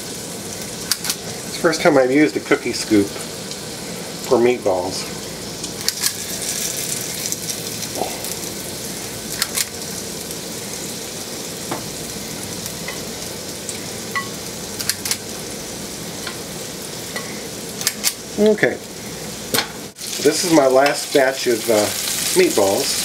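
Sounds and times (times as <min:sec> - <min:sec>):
meatballs sizzling in oil: 0:00.0 - 0:23.0.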